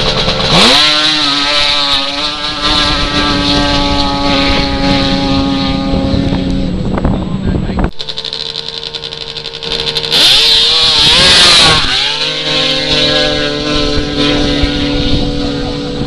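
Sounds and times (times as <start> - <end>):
racing snowmobile engines: 0.0 - 16.0.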